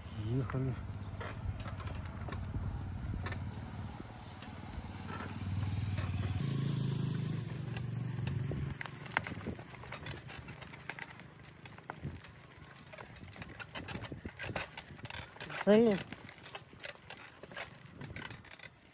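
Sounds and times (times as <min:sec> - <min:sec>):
vehicle motor humming: 0:00.0 - 0:11.6.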